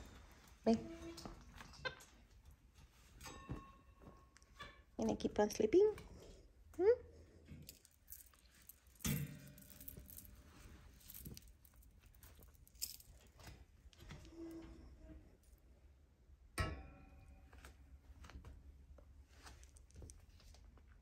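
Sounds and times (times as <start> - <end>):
light knocks and clinks: 2.8 - 4.8, 7.5 - 13.6.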